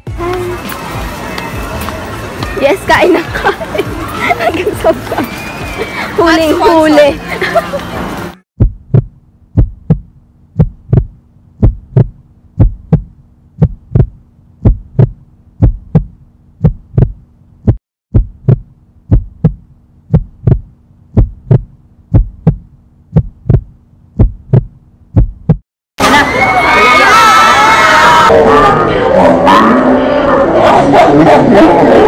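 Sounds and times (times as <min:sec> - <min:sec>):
low hum: 0:07.3 - 0:25.6
heartbeat thumps: 0:08.6 - 0:25.6.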